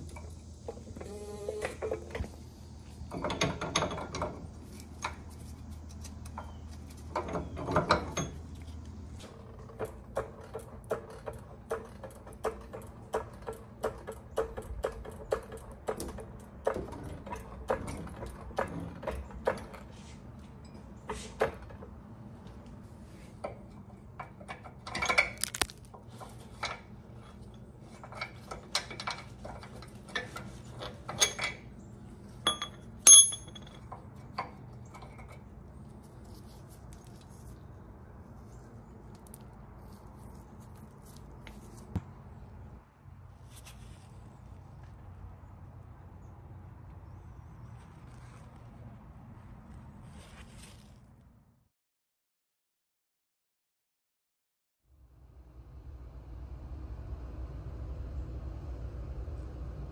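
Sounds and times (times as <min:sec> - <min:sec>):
metal taps and clinks: 0:32.4 - 0:35.3.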